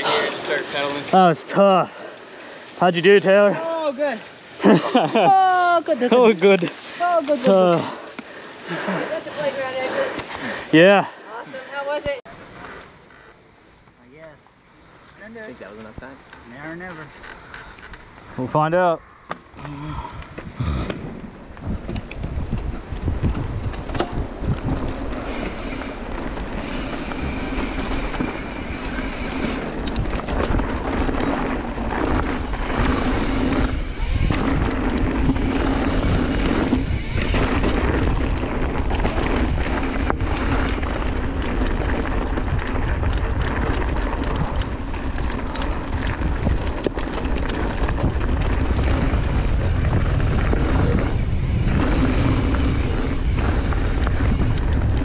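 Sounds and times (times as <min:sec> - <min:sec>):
bike knocking and rattling: 0:00.0 - 0:10.8, 0:20.3 - 0:55.0
wind rushing over microphone: 0:18.1 - 0:55.0
tyres rolling over dirt: 0:19.9 - 0:55.0.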